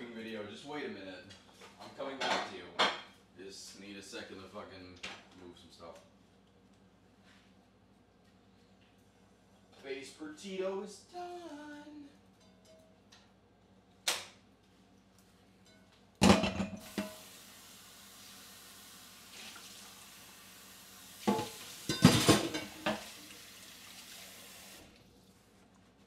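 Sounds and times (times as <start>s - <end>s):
dishes clattering: 2.2s - 3.1s, 15.7s - 17.2s, 21.3s - 23.2s
water running: 16.8s - 25.4s.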